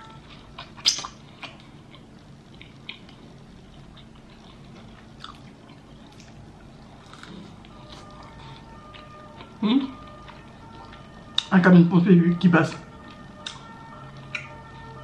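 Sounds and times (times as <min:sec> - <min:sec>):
chewing: 0:00.2 - 0:11.5, 0:13.0 - 0:14.9
wet mouth clicks and smacks: 0:00.8 - 0:01.2.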